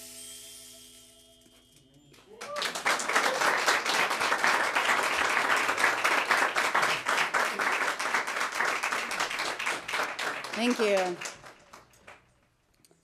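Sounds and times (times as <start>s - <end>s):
audience applause: 2.3s - 12.2s.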